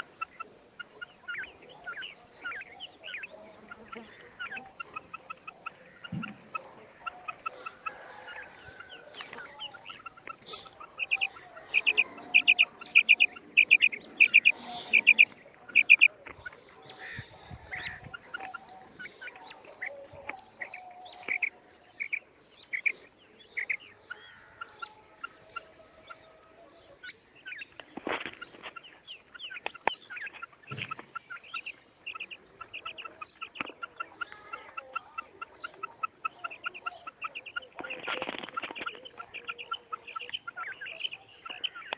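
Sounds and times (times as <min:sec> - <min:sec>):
quail calling: 0:00.0 - 0:41.9
rustling noise: 0:27.9 - 0:28.8, 0:37.8 - 0:39.0.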